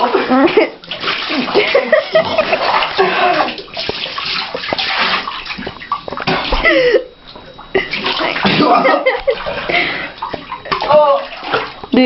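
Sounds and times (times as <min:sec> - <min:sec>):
water splashing in bathtub: 0:00.0 - 0:12.0.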